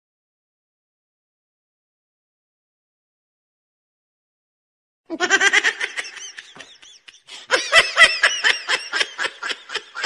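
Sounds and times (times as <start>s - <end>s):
person laughing hard: 5.1s - 10.0s.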